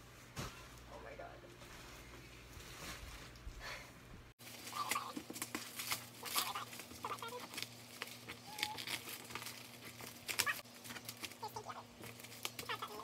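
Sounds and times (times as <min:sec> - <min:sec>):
packaging crinkling and tearing: 0:04.4 - 0:13.0.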